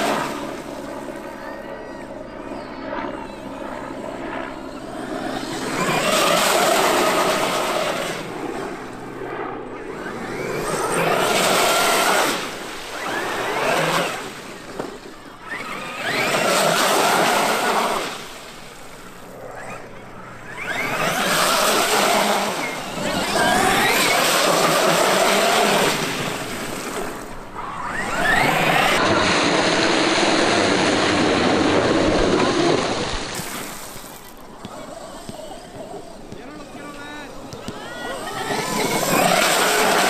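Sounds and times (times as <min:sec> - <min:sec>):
electric motor whine: 0:00.0 - 0:40.0.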